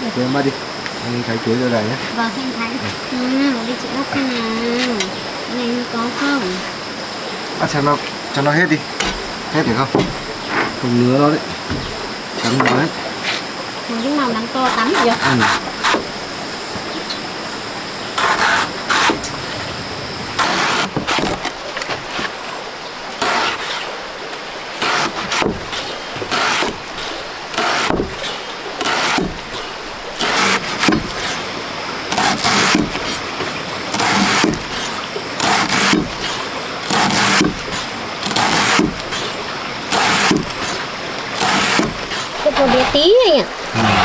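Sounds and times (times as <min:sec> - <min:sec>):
knife cutting on a board: 0:18.2 - 0:19.2, 0:24.8 - 0:29.4, 0:30.2 - 0:31.5, 0:32.1 - 0:33.2, 0:33.9 - 0:39.3, 0:39.9 - 0:40.8, 0:41.4 - 0:43.0.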